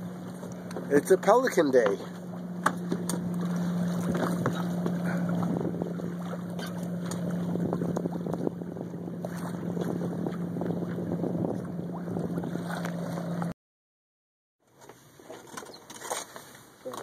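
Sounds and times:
steady low hum: 0.0s - 13.5s
water rushing past a hull: 0.0s - 13.5s
wind on the microphone: 3.9s - 13.1s.

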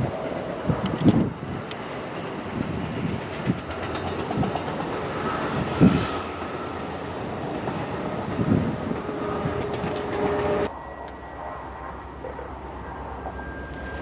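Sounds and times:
train running past on rails: 0.0s - 14.0s
faint steady tone: 10.7s - 14.0s.

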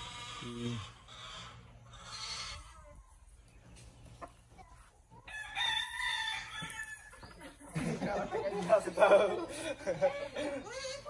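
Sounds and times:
rooster crowing: 5.2s - 7.3s.

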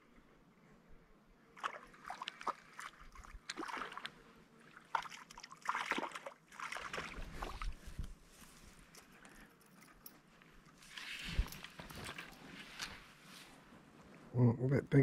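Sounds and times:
water splashing and sloshing: 1.5s - 8.5s.

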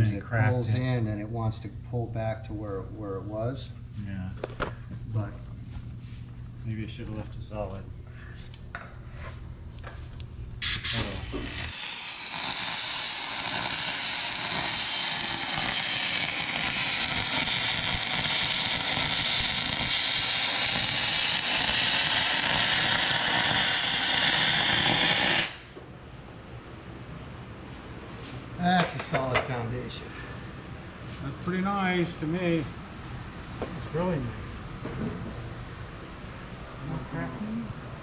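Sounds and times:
welding arc hissing: 10.6s - 25.8s.

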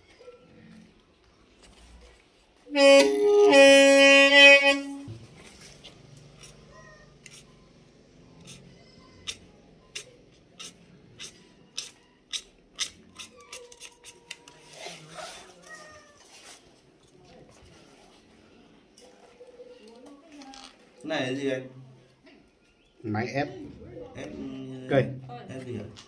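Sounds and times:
knife scraping metal reed: 10.0s - 14.2s.

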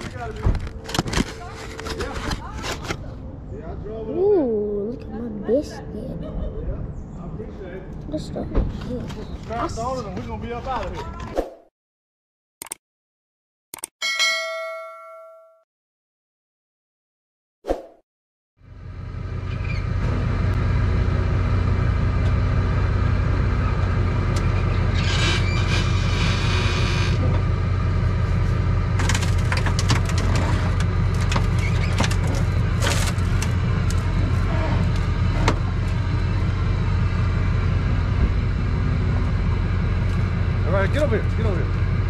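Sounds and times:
vehicle engine and road noise: 0.0s - 11.4s, 18.6s - 42.0s
clicks and rattles: 29.0s - 34.1s.

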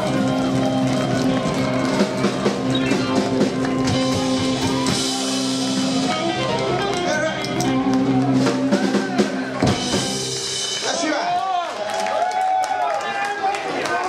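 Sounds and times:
upright double bass: 0.0s - 10.6s
electric guitar: 0.0s - 10.9s
drum kit: 0.0s - 11.6s.

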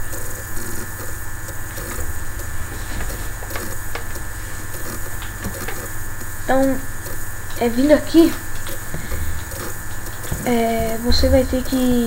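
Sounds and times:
background hum and hiss: 0.0s - 12.0s
faint clicks: 0.0s - 12.0s.

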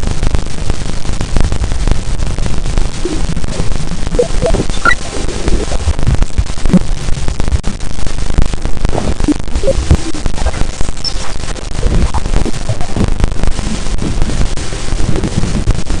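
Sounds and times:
crackling static: 0.0s - 16.0s
low rumble: 0.0s - 16.0s.

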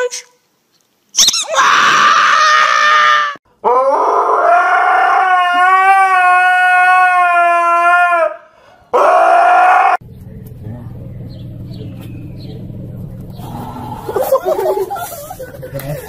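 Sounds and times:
dog howling: 1.4s - 10.0s.

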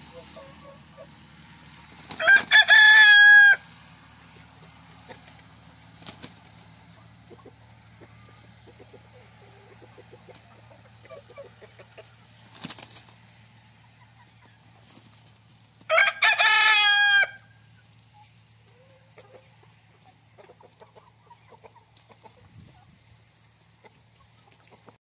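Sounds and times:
chickens clucking: 0.0s - 25.0s
rooster crowing: 2.1s - 3.7s, 15.9s - 17.6s.

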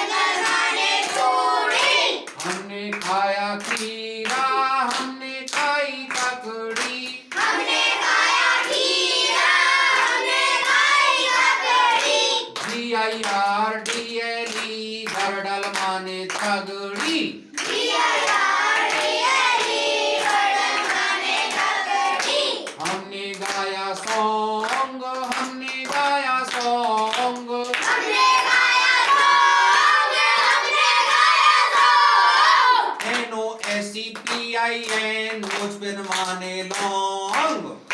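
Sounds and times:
children chanting in chorus: 0.0s - 2.4s, 7.3s - 12.6s, 17.6s - 22.8s, 27.8s - 33.0s
hand clapping: 0.4s - 7.8s, 9.9s - 11.0s, 11.9s - 29.8s, 33.0s - 37.9s
man chanting: 2.4s - 7.4s, 12.6s - 17.6s, 22.8s - 27.9s, 33.0s - 37.9s.

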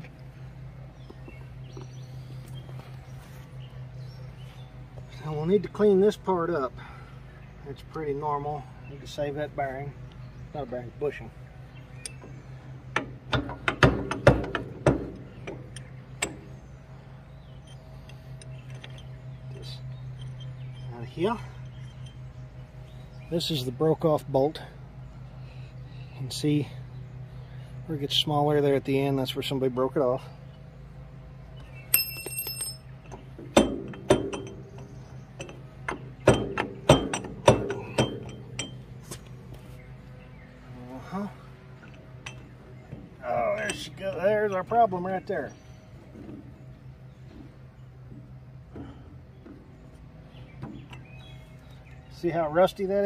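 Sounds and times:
metal clicks and knocks: 12.0s - 16.5s, 17.6s - 20.9s, 31.9s - 39.3s, 41.8s - 44.8s
metallic clinks and clanks: 17.6s - 22.4s, 31.9s - 39.1s, 41.8s - 42.8s.

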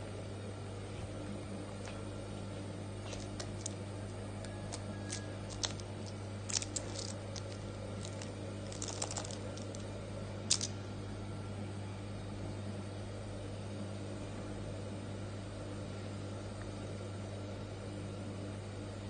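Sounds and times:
puppy pawing clicks and scratches: 4.7s - 9.8s.

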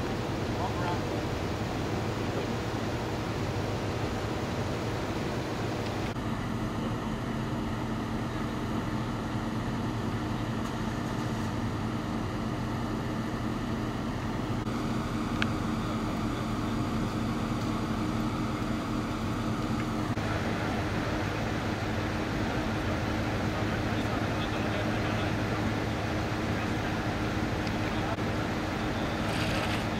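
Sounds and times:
vehicle engines idling: 0.0s - 29.9s.

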